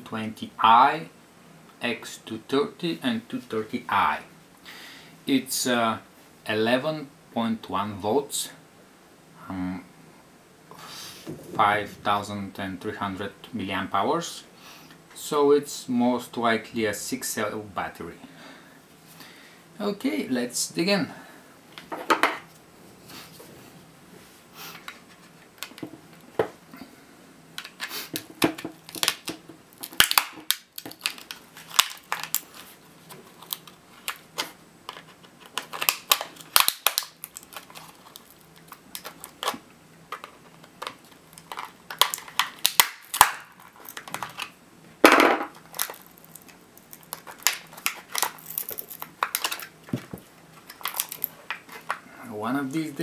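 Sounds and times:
plastic crack: 0:27.6 - 0:52.0.

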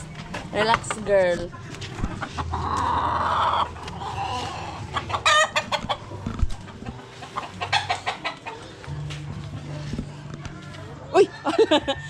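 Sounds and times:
rooster clucking and calling: 0:02.1 - 0:08.8.

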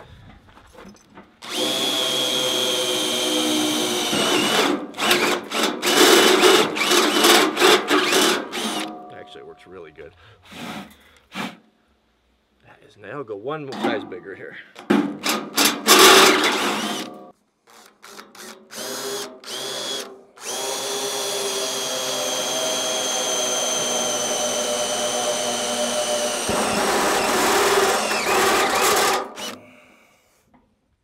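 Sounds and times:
drill cutting through sheet steel: 0:01.4 - 0:08.9, 0:15.2 - 0:29.6.

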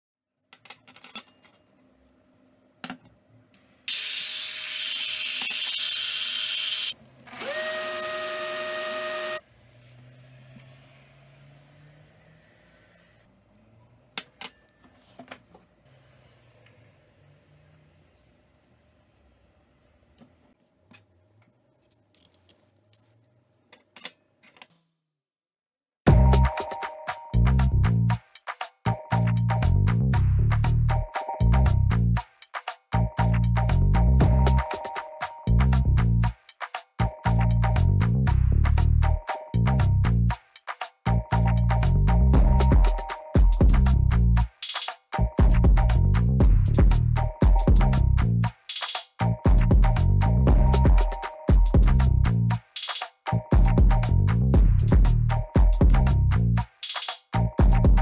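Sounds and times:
cutlery clicking on table: 0:00.4 - 0:01.6
cordless drill whine: 0:03.9 - 0:09.4
rotary tool cutting hiss: 0:03.9 - 0:09.4
loud bass-heavy music: 0:26.1 - 0:26.6, 0:27.3 - 0:28.2, 0:28.9 - 0:32.2, 0:33.0 - 0:34.7, 0:35.5 - 0:36.3, 0:37.0 - 0:40.4, 0:41.1 - 0:44.5, 0:45.2 - 0:48.5, 0:49.2 - 0:52.6, 0:53.3 - 0:56.7, 0:57.4 - 0:58.0.

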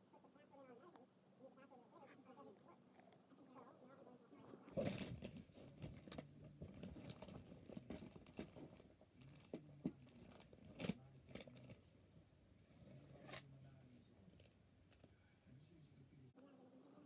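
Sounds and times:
faint clicks and rustles: 0:02.0 - 0:11.9.

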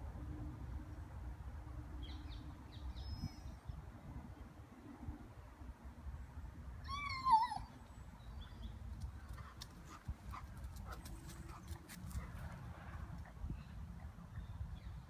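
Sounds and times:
dog whining cry: 0:06.9 - 0:07.8
dog paws running: 0:09.0 - 0:12.6.

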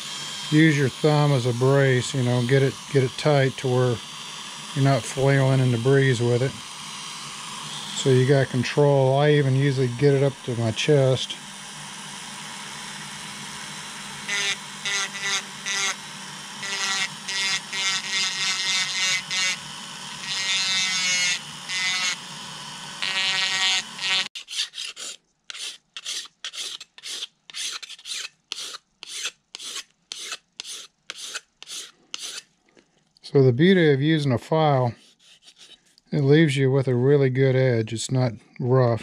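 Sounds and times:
rotary tool grinding: 0:00.0 - 0:11.2, 0:13.6 - 0:32.5, 0:35.0 - 0:36.0
hand file rasping: 0:16.6 - 0:19.6, 0:23.0 - 0:32.5, 0:34.9 - 0:35.9.

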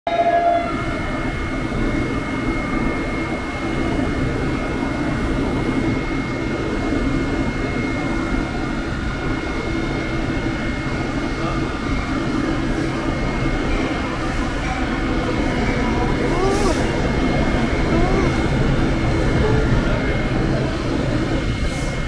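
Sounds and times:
electric train rumbling: 0:00.1 - 0:22.0
high train whine: 0:00.1 - 0:22.0.

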